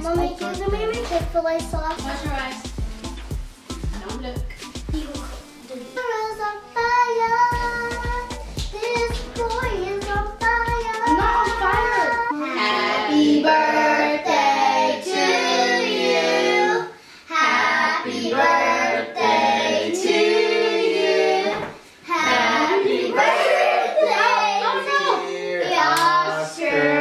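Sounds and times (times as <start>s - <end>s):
child singing: 0.0s - 2.4s, 5.9s - 27.0s.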